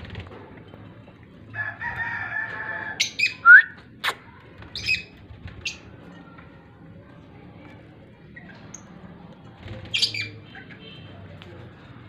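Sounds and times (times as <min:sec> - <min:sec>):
cockatiels calling and squawking: 0:02.7 - 0:03.4, 0:04.0 - 0:05.9, 0:09.7 - 0:10.8.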